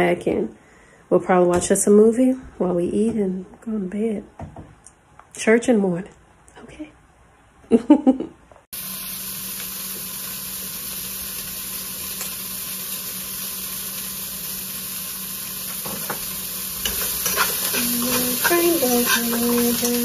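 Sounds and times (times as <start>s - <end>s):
beef sizzling in a frying pan: 8.8s - 20.0s.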